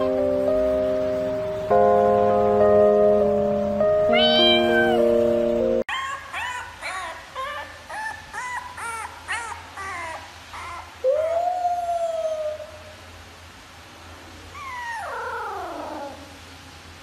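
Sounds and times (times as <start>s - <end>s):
puppy howling and yipping: 5.9s - 13.0s, 14.5s - 16.4s.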